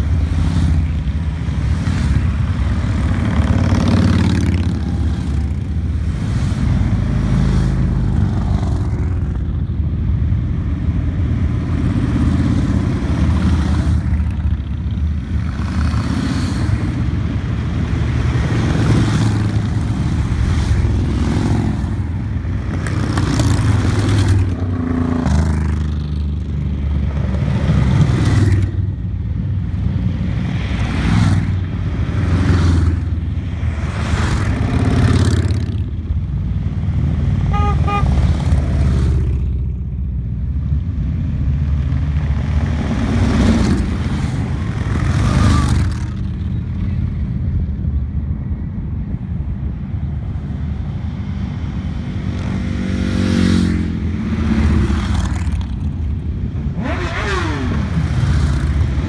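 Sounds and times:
motorcycles riding past: 0.0s - 48.2s, 49.8s - 59.0s.

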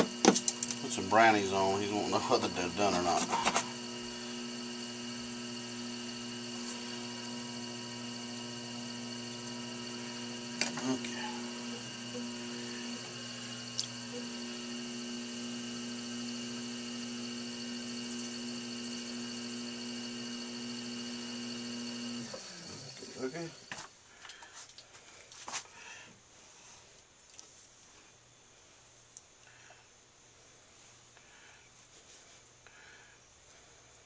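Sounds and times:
pottery wheel motor humming: 0.0s - 23.9s.

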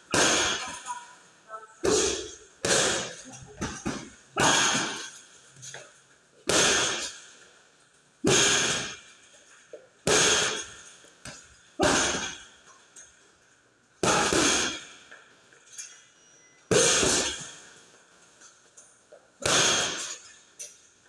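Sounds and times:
gloves punching heavy bag: 0.1s - 0.8s, 1.8s - 5.1s, 6.5s - 7.2s, 8.2s - 9.0s, 10.1s - 10.8s, 11.8s - 12.4s, 14.0s - 14.8s, 16.7s - 17.6s, 19.4s - 20.2s.

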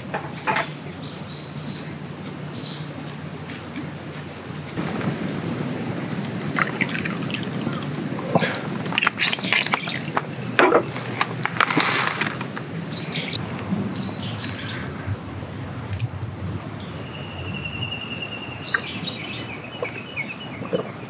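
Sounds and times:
liquid pouring into glass cup: 6.4s - 7.8s
bird chirps: 17.0s - 21.0s.

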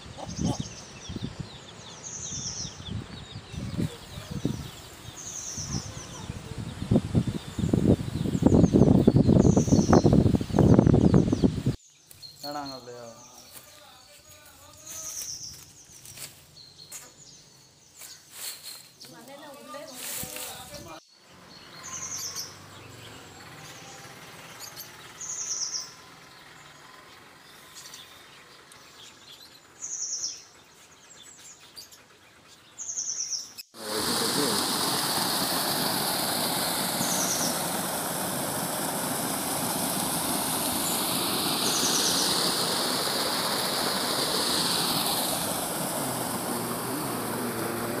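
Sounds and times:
sparrows chirping: 0.0s - 48.0s
water pouring over a weir: 33.8s - 47.9s.

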